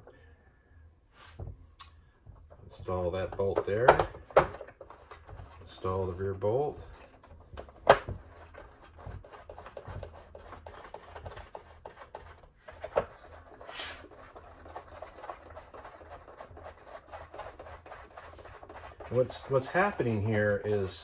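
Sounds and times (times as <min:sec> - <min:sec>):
hands rubbing and scratching: 0:04.5 - 0:21.0.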